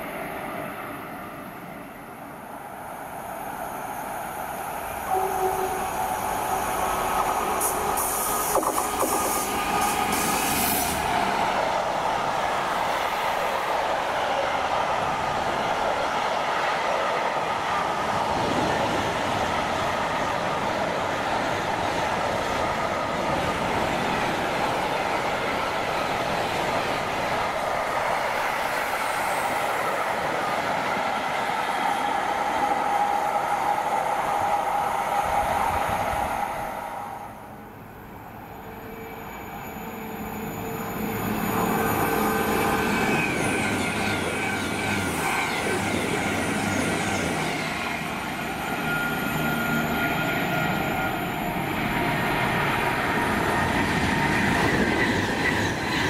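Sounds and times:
freight train wheels rumbling and clattering: 6.5s - 33.0s, 39.9s - 56.0s.

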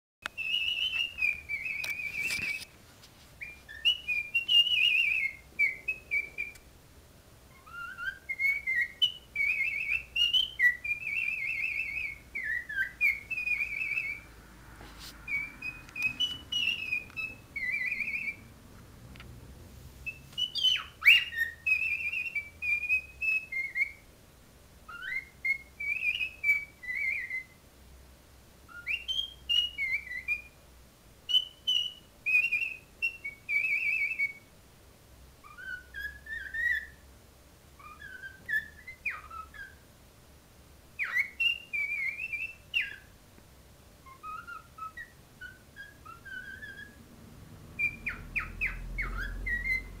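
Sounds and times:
cockatiel whistling: 0.2s - 2.7s, 3.4s - 6.6s, 7.5s - 14.4s, 15.1s - 18.5s, 20.0s - 24.1s, 24.9s - 27.6s, 28.7s - 30.6s, 31.3s - 34.5s, 35.4s - 37.1s, 37.8s - 39.9s, 41.0s - 43.1s, 44.0s - 47.1s, 47.7s - 50.0s.

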